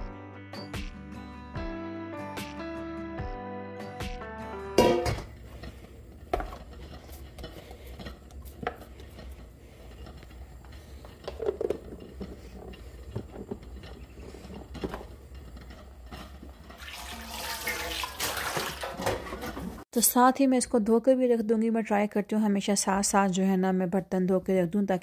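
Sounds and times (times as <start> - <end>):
metal bowl set into steel sink: 4.8 - 5.4
kitchenware clattering: 4.8 - 19.8.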